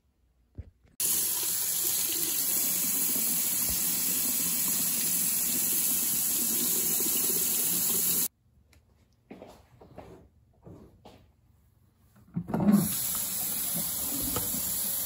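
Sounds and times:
tap water splashing in sink: 3.4 - 8.3, 12.8 - 15.0.

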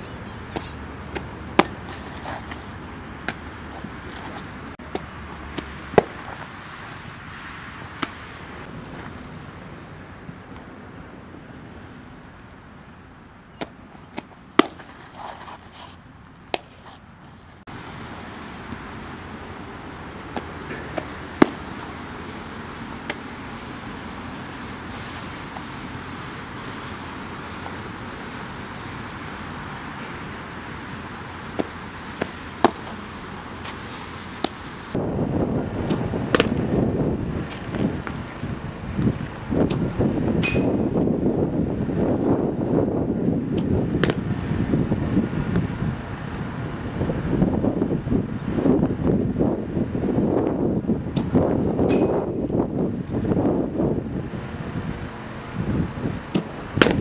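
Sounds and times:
softball smacking into mitt: 0.6 - 2.6, 3.2 - 6.3, 13.6 - 15.0, 16.4 - 16.8, 20.3 - 21.9, 31.6 - 33.0, 35.8 - 36.6, 43.6 - 44.2, 56.3 - 57.0
wind hiss: 17.6 - 57.0
wind buffeting microphone: 34.6 - 57.0.

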